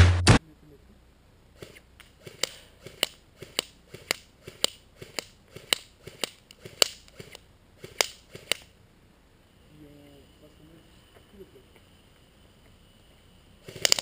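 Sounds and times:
airsoft gun clicks: 1.6s - 8.7s, 13.7s - 14.0s.

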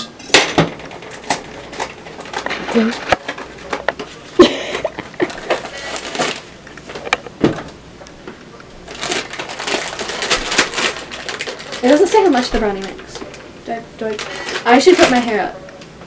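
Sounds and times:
plastic pouch crinkling: 5.2s - 7.1s, 8.8s - 15.4s.

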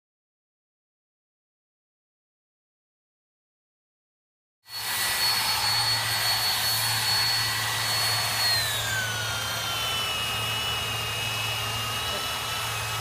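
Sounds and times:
power sander whining: 4.7s - 13.0s.

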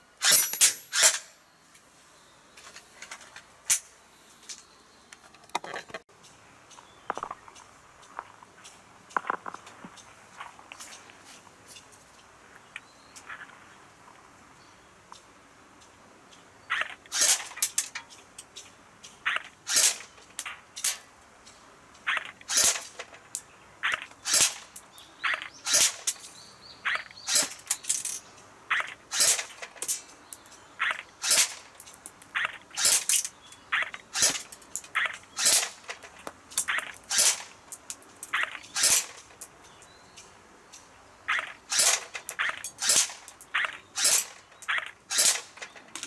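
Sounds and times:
airsoft pistol shots: 19.3s - 20.1s, 23.9s - 24.6s, 31.2s - 31.6s, 35.4s - 35.9s, 37.1s - 37.5s, 38.8s - 39.2s, 41.7s - 45.6s.

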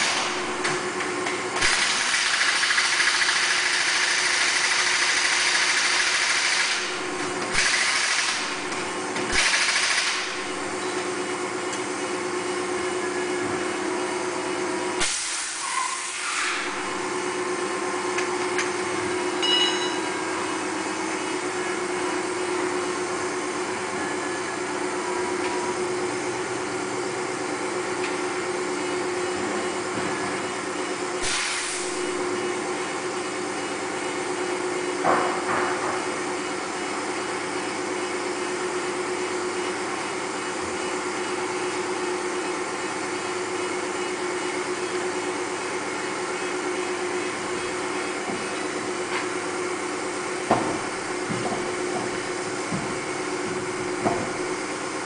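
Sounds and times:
tyre changer motor hum: 0.0s - 55.0s
air hiss bursts: 15.0s - 16.7s, 31.2s - 32.0s.

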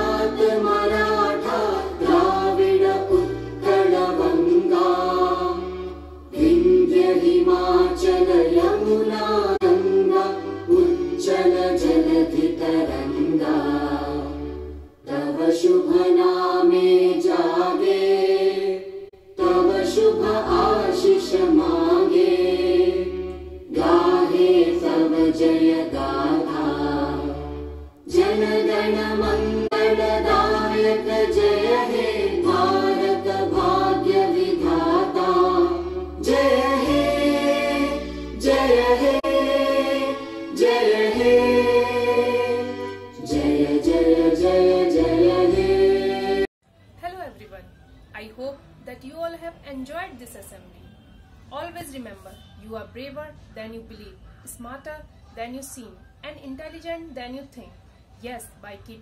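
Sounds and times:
voices singing a song: 0.0s - 46.5s.

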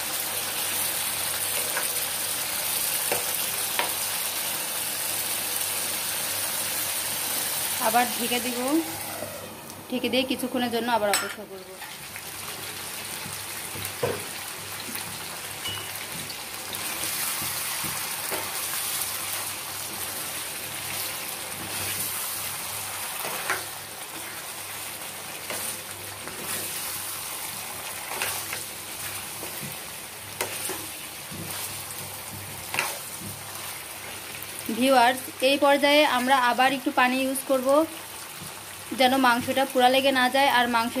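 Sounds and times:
curry sizzling in a pan: 0.0s - 41.0s
spatula scraping and knocking pan: 30.4s - 33.4s.

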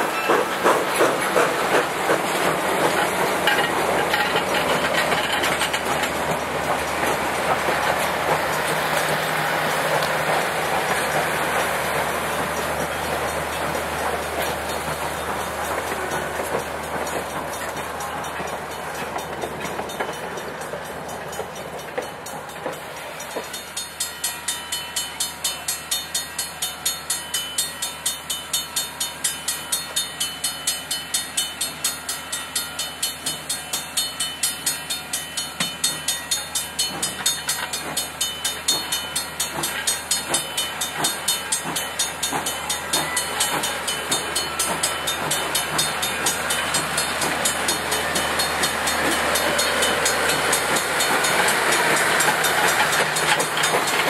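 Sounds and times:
train coaches rolling past: 0.0s - 54.0s
crossing signal bell ringing: 2.3s - 54.0s.

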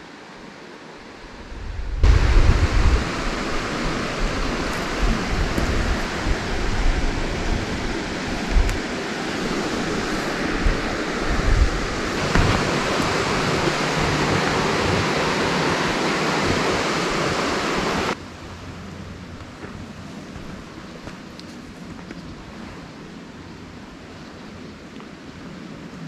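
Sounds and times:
river water rushing: 0.0s - 26.0s
low knocks: 12.2s - 15.4s.

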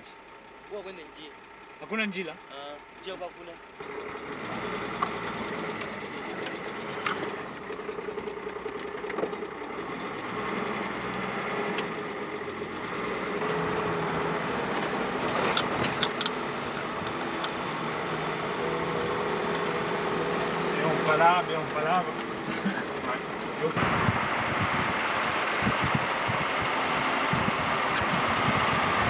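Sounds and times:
car engine running: 0.0s - 29.0s
sharp clicks and knocks: 3.8s - 17.8s.

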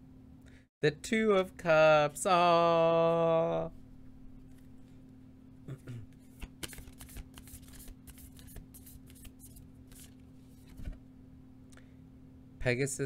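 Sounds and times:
cards being shuffled: 6.2s - 11.0s.

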